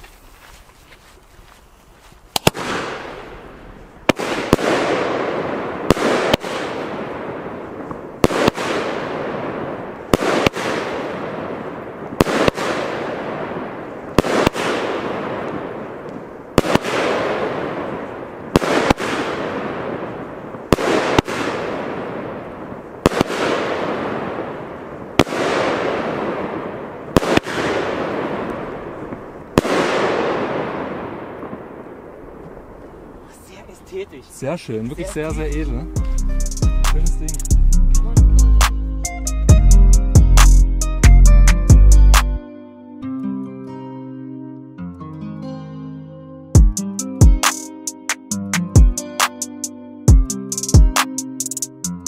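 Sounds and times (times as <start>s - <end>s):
crackling firework shower: 0.0s - 37.7s
firework battery shots: 2.3s - 3.4s, 4.0s - 32.0s.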